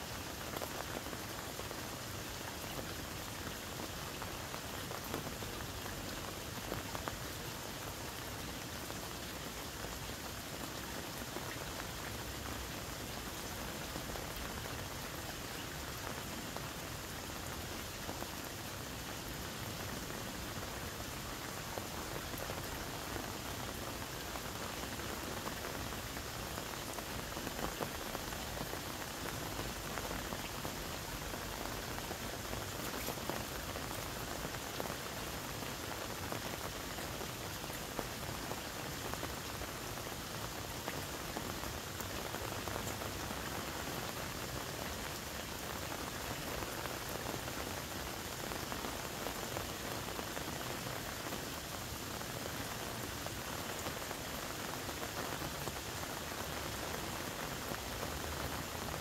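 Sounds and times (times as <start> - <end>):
patter of falling water: 0.0 - 59.0
faint tiny crackles: 21.4 - 46.8.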